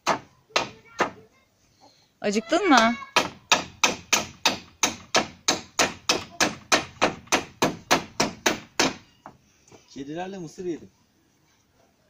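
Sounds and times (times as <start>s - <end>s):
hammer striking wood: 0.0s - 1.2s, 2.7s - 9.4s.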